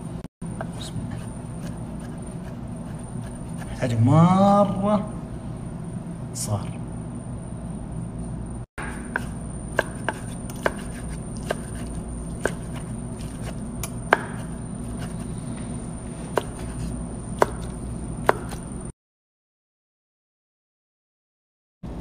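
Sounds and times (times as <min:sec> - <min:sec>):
steady low hum: 0:00.0 - 0:18.9
knife chopping on wooden board: 0:08.8 - 0:15.2, 0:16.3 - 0:18.7.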